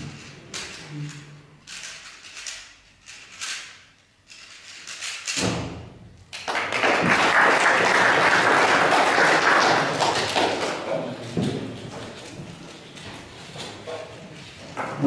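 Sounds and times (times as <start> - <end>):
thud: 5.4 - 6.1
audience applauding: 6.4 - 11.1.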